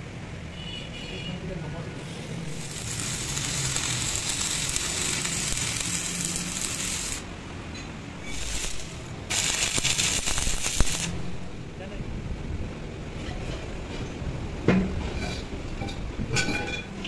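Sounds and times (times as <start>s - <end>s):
welding arc hissing: 2.0s - 7.3s, 8.2s - 11.7s.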